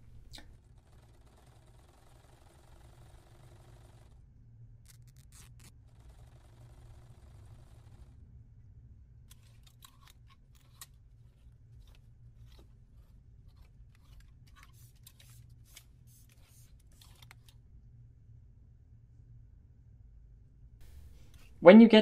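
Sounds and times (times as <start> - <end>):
low steady hum: 0.0 - 0.8, 7.0 - 22.0
needle and thread through cloth: 4.8 - 8.1, 9.3 - 17.6.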